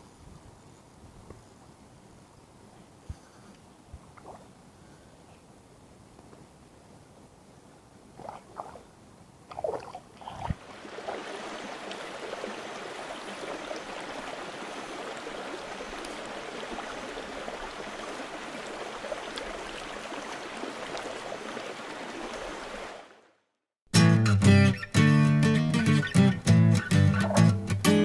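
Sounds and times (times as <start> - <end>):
running water: 8.0 - 23.3
fish splashing in water: 9.5 - 21.8.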